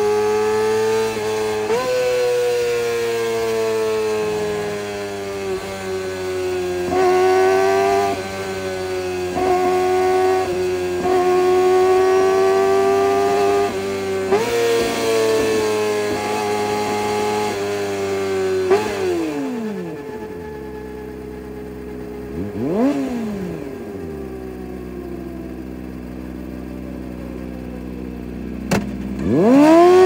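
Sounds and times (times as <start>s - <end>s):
motorcycle engine revving high: 0.0s - 30.0s.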